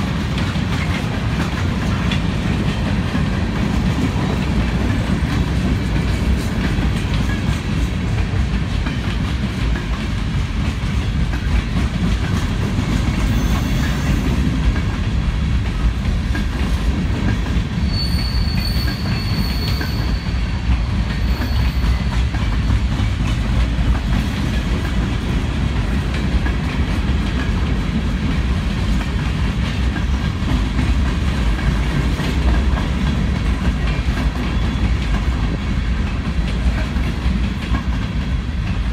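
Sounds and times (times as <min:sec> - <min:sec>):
train wheels running over rails: 0:00.0 - 0:38.9
high wheel squeal: 0:13.2 - 0:14.2, 0:17.8 - 0:22.2.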